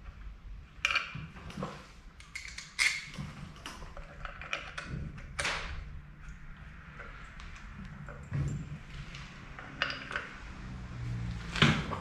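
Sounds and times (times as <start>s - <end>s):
metal parts clicking and tapping: 2.2s - 8.8s, 9.5s - 10.5s.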